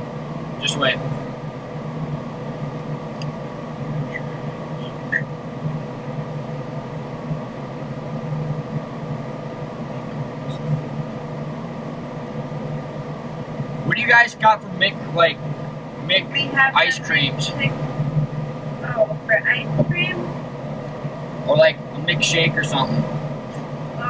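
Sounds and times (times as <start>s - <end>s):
car cabin hum while idling: 0.0s - 24.0s.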